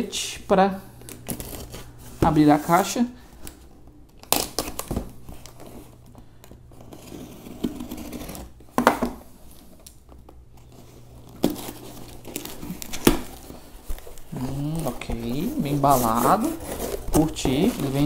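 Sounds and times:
packing tape being slit and torn: 0:03.4 - 0:05.7, 0:06.8 - 0:08.6.

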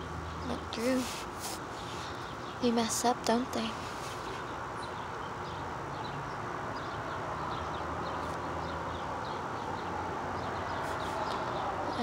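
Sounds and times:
steady hiss: 0:00.8 - 0:02.5.

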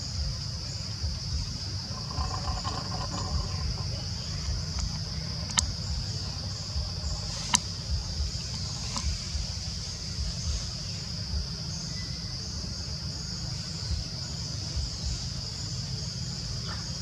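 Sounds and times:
low rumble: 0:00.0 - 0:11.8
insects droning: 0:00.0 - 0:17.0.

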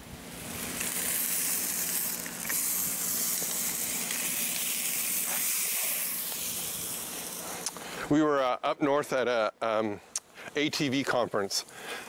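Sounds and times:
meat sizzling on a griddle: 0:00.3 - 0:07.7.

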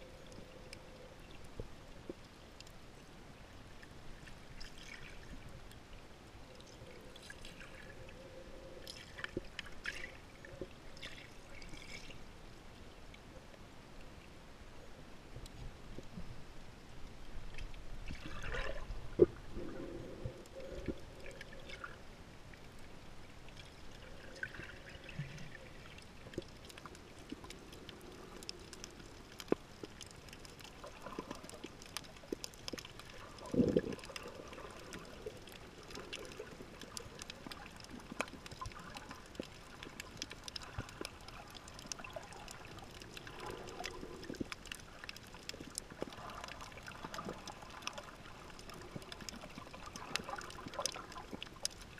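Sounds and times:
small underwater clicks: 0:00.0 - 0:12.4, 0:17.4 - 0:51.9
underwater gurgling and sloshing: 0:00.0 - 0:51.9
low water gush: 0:23.5 - 0:51.9.

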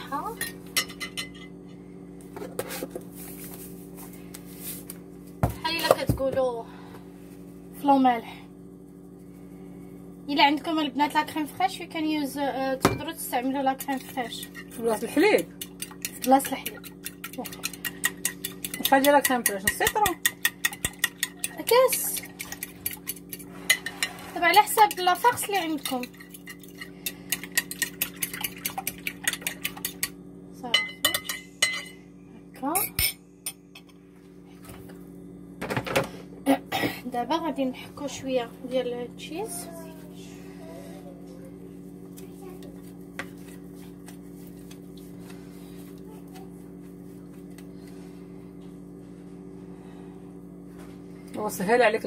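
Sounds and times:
steady low hum: 0:00.0 - 0:52.0
fork beating egg in glass dish: 0:13.4 - 0:30.2.

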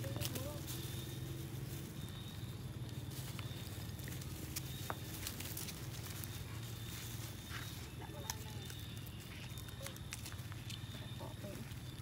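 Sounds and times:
light clicks and rustles on gravel: 0:00.0 - 0:12.0.

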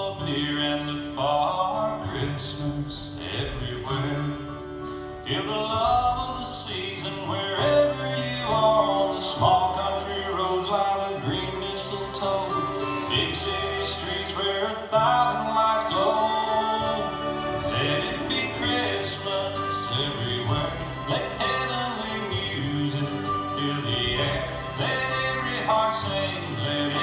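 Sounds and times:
country song with male singer: 0:00.0 - 0:27.0.

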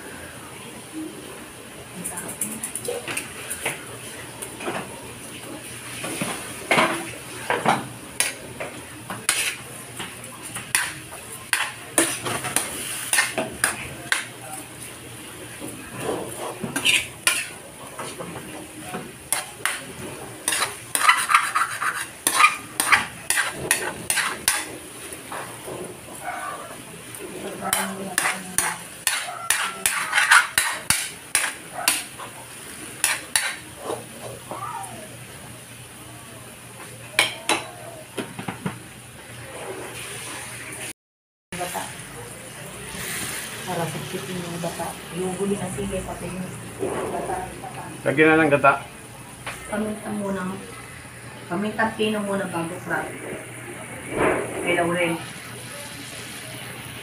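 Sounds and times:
meat sizzling: 0:05.6 - 0:35.0, 0:41.6 - 0:46.1, 0:53.8 - 0:57.0
metal spatula scraping wok: 0:09.2 - 0:09.6, 0:10.7 - 0:14.3, 0:16.0 - 0:18.2, 0:19.3 - 0:24.7, 0:27.4 - 0:32.2, 0:33.0 - 0:34.0.

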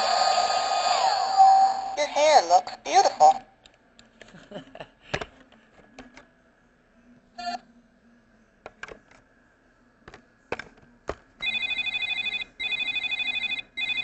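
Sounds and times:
electronic ringtone trill: 0:11.4 - 0:14.0.

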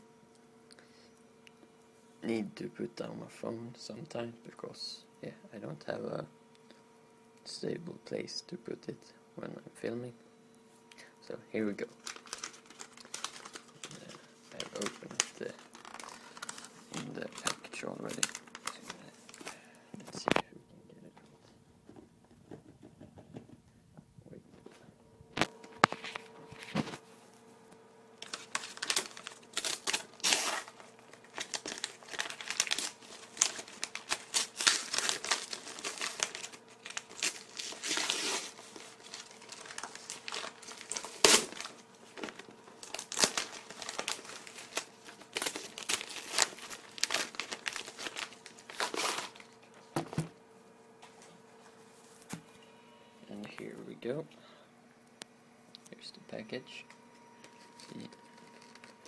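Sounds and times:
faint steady hum: 0:00.0 - 0:59.0
packaging crinkling: 0:11.8 - 0:20.4, 0:28.2 - 0:49.9, 0:57.4 - 0:59.0.

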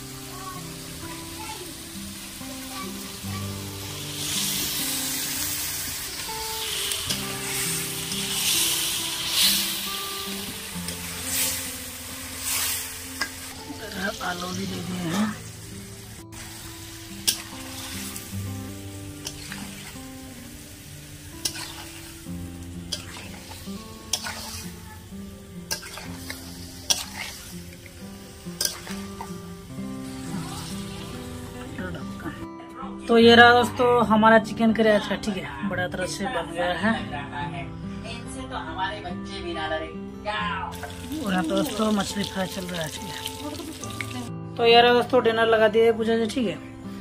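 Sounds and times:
chicken sizzling in a pan: 0:00.0 - 0:32.4, 0:40.7 - 0:44.3
soft background music: 0:00.0 - 0:47.0
spatula stirring: 0:19.2 - 0:20.0, 0:21.4 - 0:22.2, 0:22.8 - 0:24.8, 0:25.7 - 0:29.4.

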